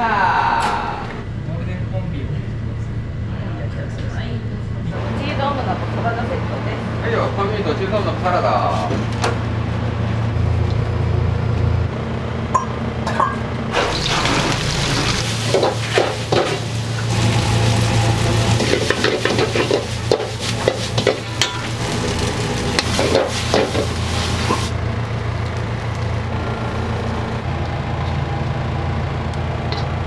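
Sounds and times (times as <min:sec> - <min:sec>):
steady low hum: 0:00.0 - 0:30.0
food sizzling in frying pan: 0:13.8 - 0:24.8.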